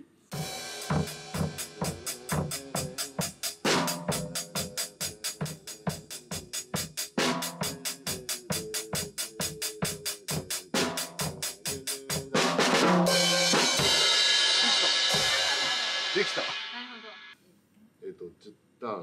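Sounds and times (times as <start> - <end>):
cymbal crash: 0.3 - 6.5, 12.8 - 17.4
drum kit beat: 0.3 - 17.4.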